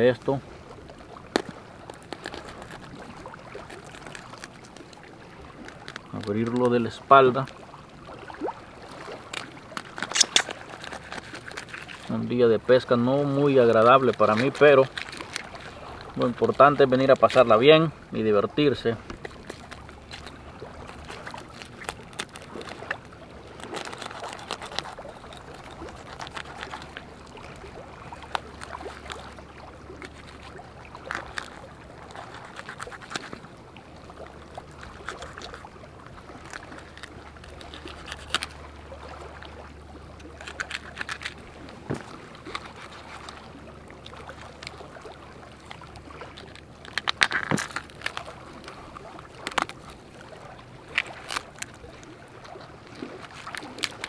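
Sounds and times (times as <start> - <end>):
knife cutting through fish: 9.3 - 12.1, 23.6 - 27.1, 30.0 - 33.4, 36.5 - 38.6.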